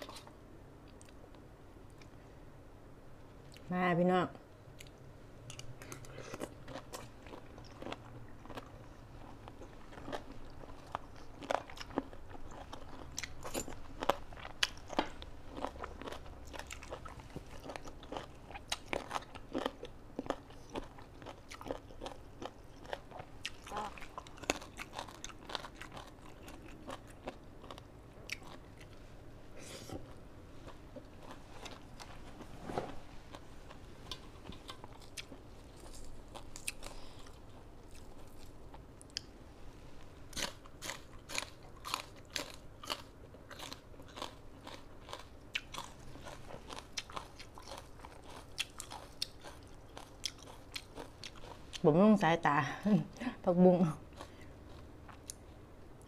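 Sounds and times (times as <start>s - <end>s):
crunchy chewing: 4.8s - 29.0s, 33.3s - 39.3s, 40.3s - 51.8s.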